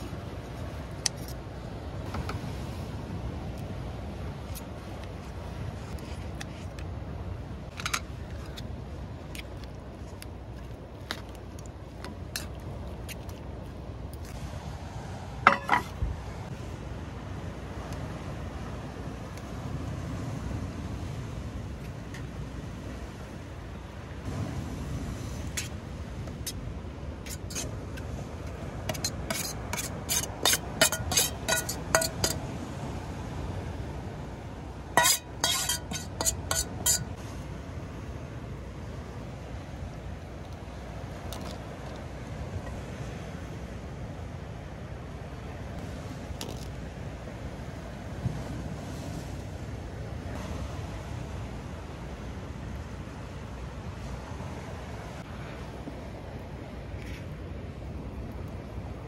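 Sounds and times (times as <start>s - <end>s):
utensils clicking against metal bowl: 28.9s - 32.4s, 35.0s - 37.1s.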